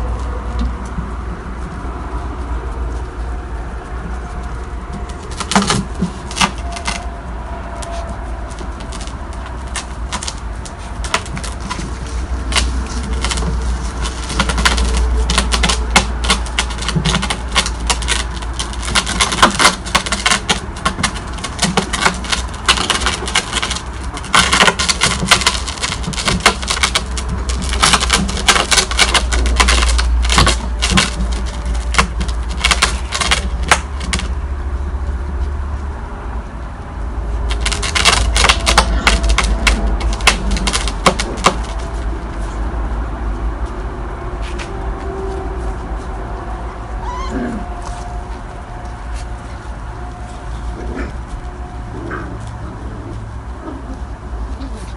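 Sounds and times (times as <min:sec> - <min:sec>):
puppy claws tapping on paving: 0:00.0 - 0:35.6, 0:37.4 - 0:43.8
steady low rumble: 0:00.0 - 0:54.9
paws knocking plastic tub: 0:07.8 - 0:34.4, 0:37.5 - 0:42.1.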